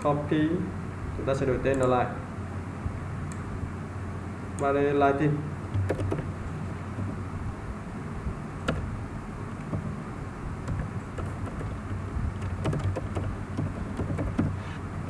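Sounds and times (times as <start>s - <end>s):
low hum and hiss: 0.0s - 15.0s
computer keyboard keys clicking: 5.8s - 6.3s, 8.7s - 8.9s, 10.6s - 14.6s.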